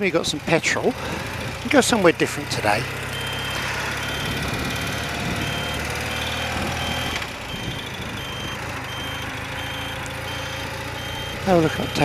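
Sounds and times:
motorcycle engine running: 0:00.0 - 0:12.0
short high electronic beep: 0:03.2 - 0:04.4, 0:05.4 - 0:12.0.

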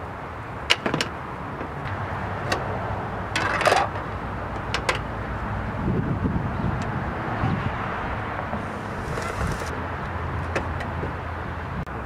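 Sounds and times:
wind rumble on microphone: 0:05.3 - 0:12.0
rattling scrape: 0:08.5 - 0:09.7.

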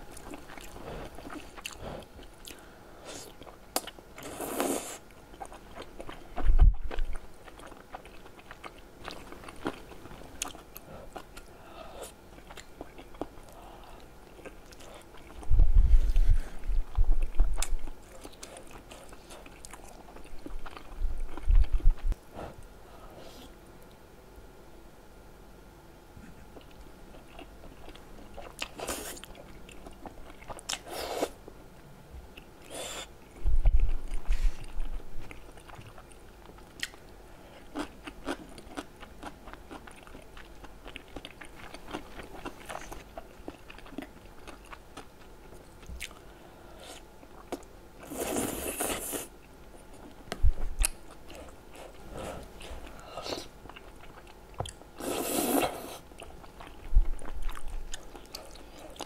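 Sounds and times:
dull low thumps: 0:15.5 - 0:17.5
wet chewing and lip smacking: 0:33.6 - 0:46.3, 0:47.2 - 0:59.0
slurping noodles: 0:55.0 - 0:56.0.

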